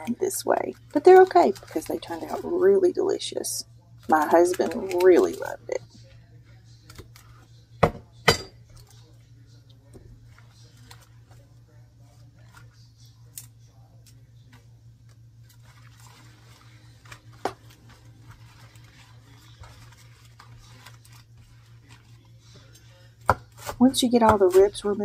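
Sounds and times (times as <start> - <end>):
leaves rustling and crinkling: 15.4 - 23.1.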